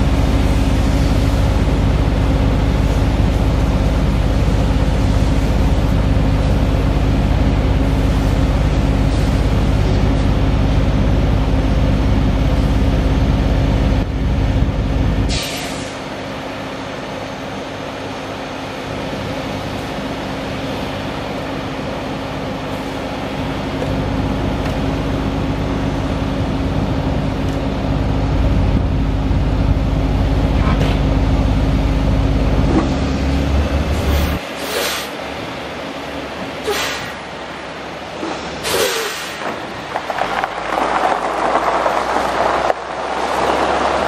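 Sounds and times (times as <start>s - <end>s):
diesel engine running under load: 0.0s - 44.0s
short hiss: 38.6s - 39.4s.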